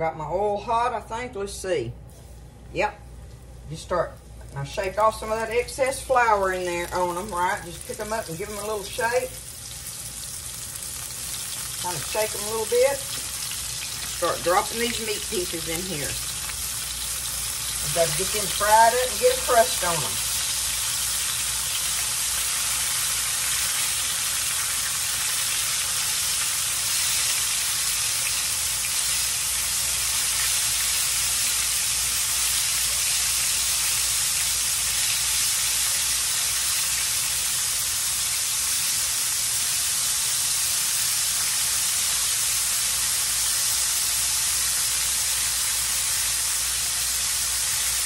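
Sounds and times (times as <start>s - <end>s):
meat sizzling in hot oil: 4.7s - 48.0s.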